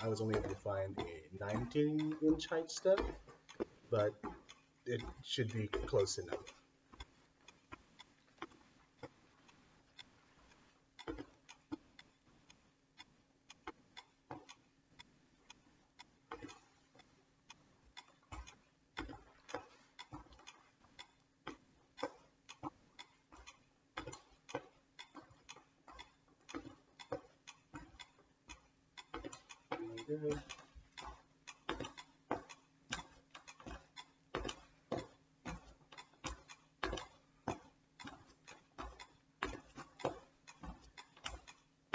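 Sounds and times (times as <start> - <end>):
metronome clicking: 0.0 - 8.2, 25.0 - 41.9
footsteps on wooden bench: 0.0 - 12.8, 17.8 - 41.9.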